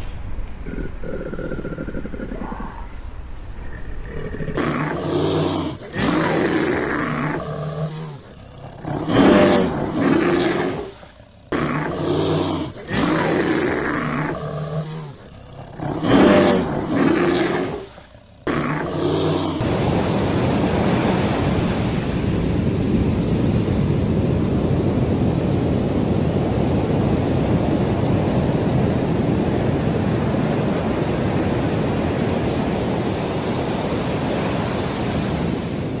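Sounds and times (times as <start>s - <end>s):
steady rushing noise: 0.0s - 36.0s
bear deep calls: 0.5s - 19.7s.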